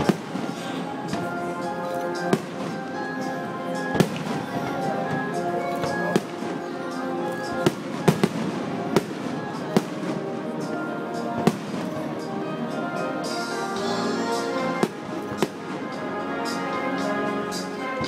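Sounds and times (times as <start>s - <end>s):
fireworks bangs: 0.0s - 1.4s, 2.2s - 3.2s, 3.9s - 12.3s, 14.8s - 16.0s
music with long held notes: 0.0s - 18.0s.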